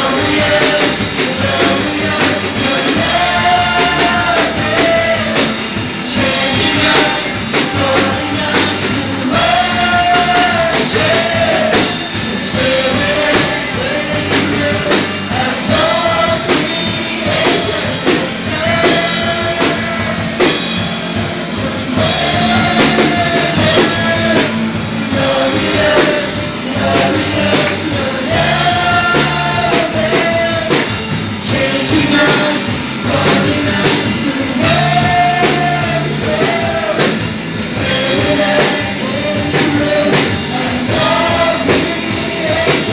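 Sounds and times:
congregation singing: 0.0s - 42.9s
instrumental accompaniment with beat: 0.0s - 42.9s
lead singer on microphone: 0.0s - 42.9s.

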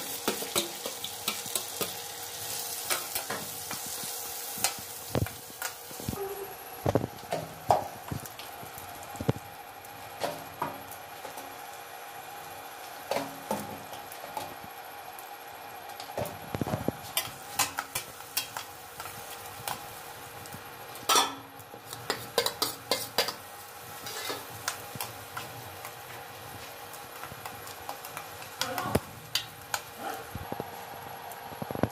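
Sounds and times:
low sizzle: 0.0s - 31.9s
metal spatula scraping a pan: 24.0s - 24.5s.

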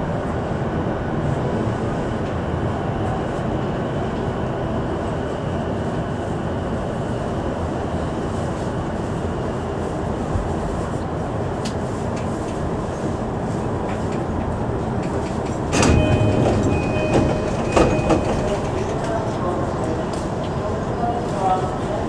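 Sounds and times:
train wheels rumbling: 10.1s - 22.0s.

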